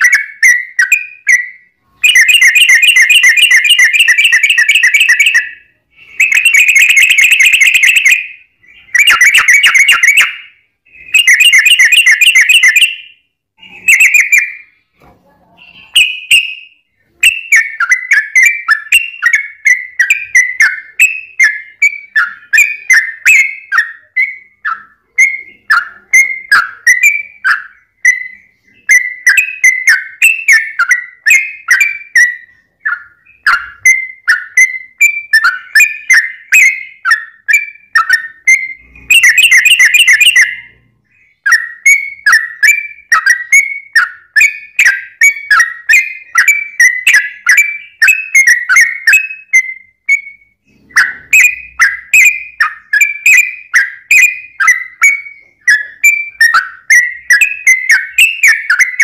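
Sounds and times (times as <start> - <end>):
bird trilling: 0.0 - 14.9, 15.5 - 59.0.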